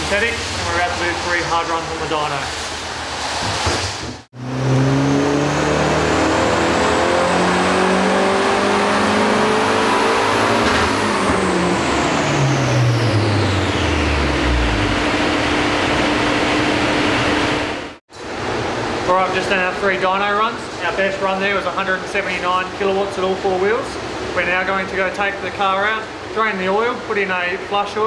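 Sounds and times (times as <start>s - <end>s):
car engine revving at full throttle: 4.2s - 18.0s
high whine: 4.4s - 18.0s.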